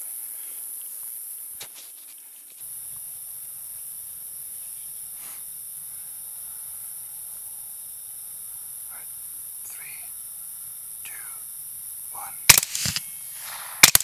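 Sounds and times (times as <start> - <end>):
high-pitched hiss: 0.0 - 14.0.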